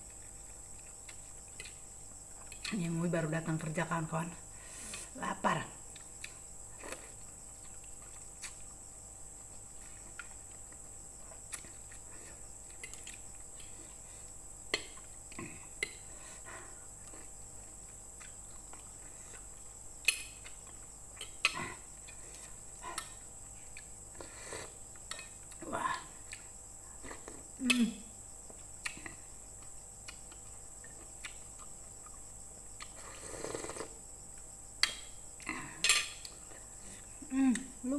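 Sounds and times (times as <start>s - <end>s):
cutlery clinking on a ceramic plate: 35.8s - 36.2s.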